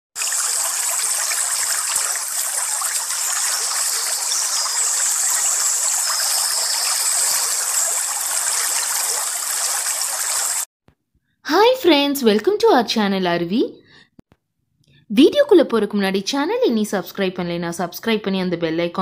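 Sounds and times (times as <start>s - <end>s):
waterfall splashing into pool: 0.2s - 10.7s.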